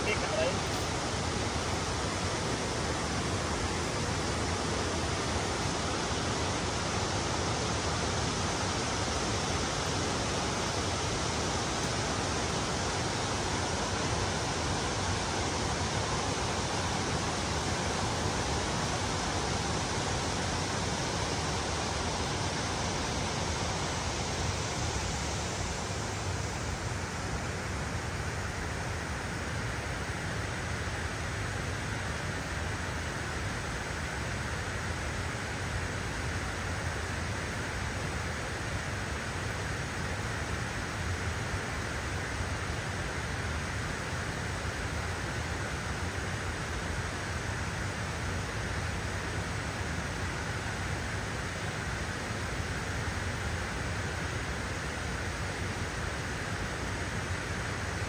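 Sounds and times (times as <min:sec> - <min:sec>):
water rushing from floodgates: 0:00.0 - 0:58.0.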